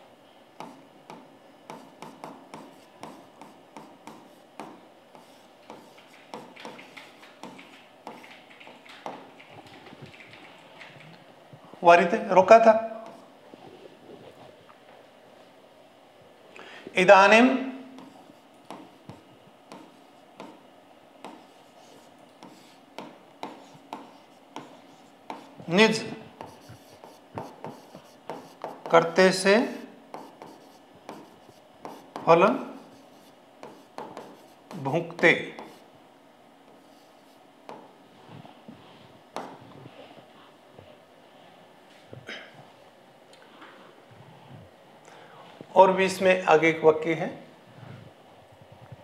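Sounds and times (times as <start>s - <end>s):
stylus scratching on glass: 26.4s - 29.0s.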